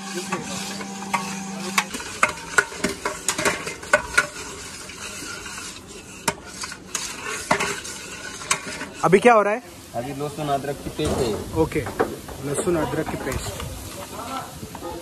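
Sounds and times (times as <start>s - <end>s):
ladles scraping steel pots: 0.0s - 15.0s
ladles knocking on pot rims: 10.9s - 13.7s.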